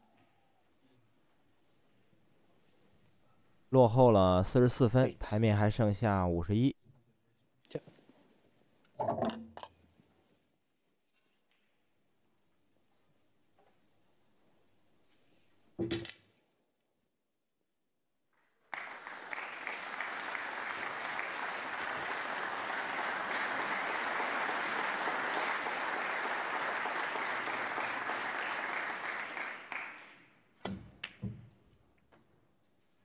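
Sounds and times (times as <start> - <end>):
audience applauding: 18.5 - 30.3.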